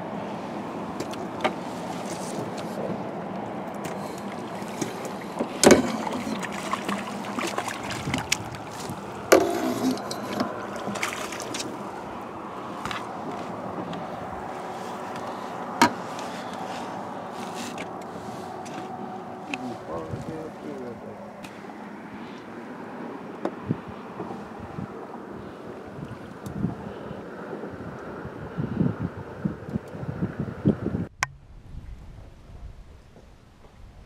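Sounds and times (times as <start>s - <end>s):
water sloshing: 0.6s - 23.5s
landing net knocking on boat: 5.4s - 8.4s.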